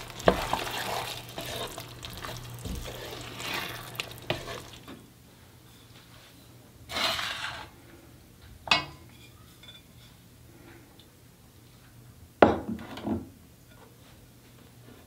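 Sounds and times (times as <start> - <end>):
plate scraping on counter: 0.0 - 4.9, 6.9 - 7.7.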